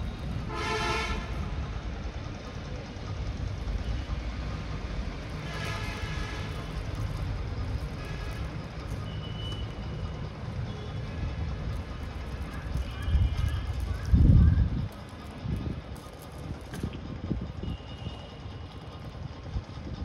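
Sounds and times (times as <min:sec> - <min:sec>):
low engine rumble: 0:00.0 - 0:20.0.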